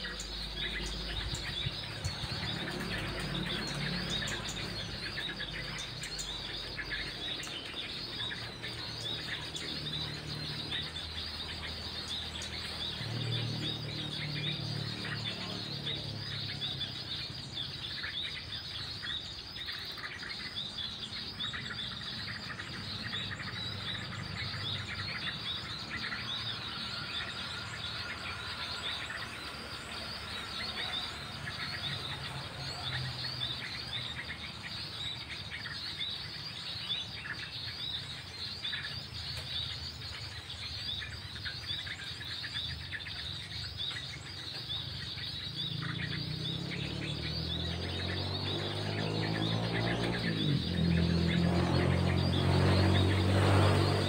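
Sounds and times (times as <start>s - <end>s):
small birds chirping: 0.0s - 54.0s
high insect drone: 18.7s - 35.5s.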